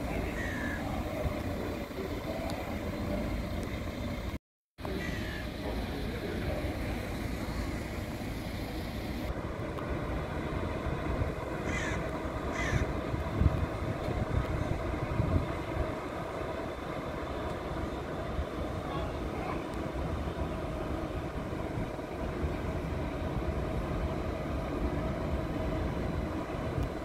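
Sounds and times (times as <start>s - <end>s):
low outdoor rumble: 0.0s - 27.0s
crow cawing: 0.3s - 0.8s, 5.0s - 5.5s, 11.6s - 12.9s.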